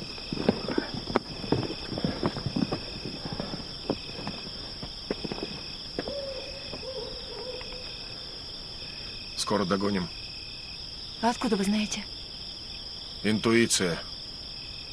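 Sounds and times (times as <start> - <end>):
footsteps crackling through undergrowth: 0.0 - 8.0
insects chirping: 0.0 - 14.9
long hoot: 6.0 - 8.1.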